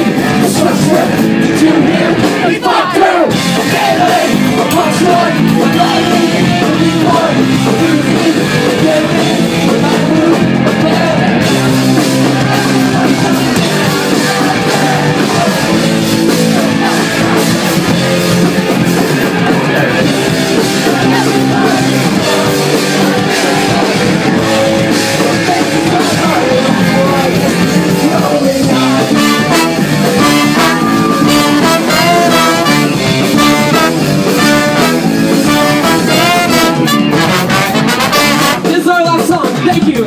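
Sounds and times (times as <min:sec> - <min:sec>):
drums: 0:00.0 - 0:40.0
electric guitar: 0:00.0 - 0:40.0
live ska-punk band: 0:00.0 - 0:40.0
trombone: 0:28.8 - 0:38.8
trumpet: 0:28.8 - 0:39.0.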